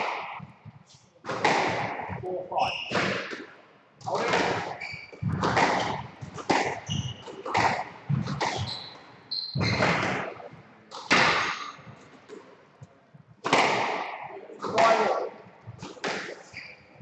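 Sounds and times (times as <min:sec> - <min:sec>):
squash ball hitting rackets and walls: 0:00.0 - 0:12.5, 0:13.4 - 0:17.0
shoes squeaking on wooden floor: 0:02.2 - 0:03.0, 0:04.7 - 0:10.6, 0:15.8 - 0:17.0.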